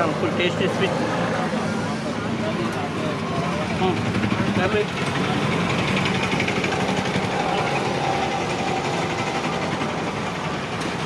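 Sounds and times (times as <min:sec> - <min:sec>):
engine idling with rattle: 0:03.7 - 0:11.0.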